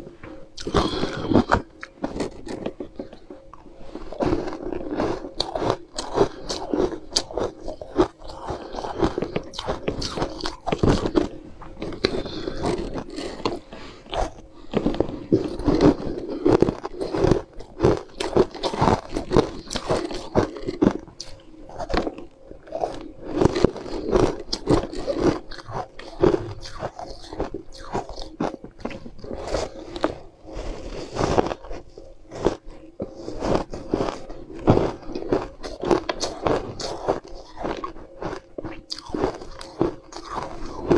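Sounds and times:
crunching ice chunks: 0:34.8 - 0:40.9.

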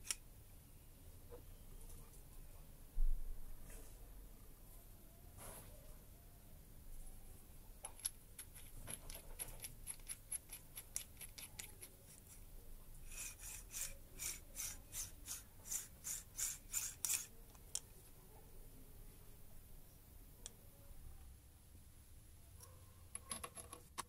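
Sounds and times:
drill chuck clicking and scraping: 0:13.2 - 0:17.8.

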